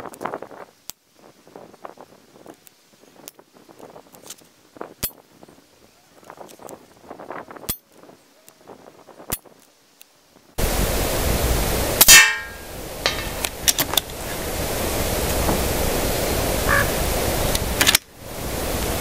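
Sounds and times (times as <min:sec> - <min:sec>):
wind noise on microphone: 0:00.0 - 0:09.7, 0:10.3 - 0:19.0.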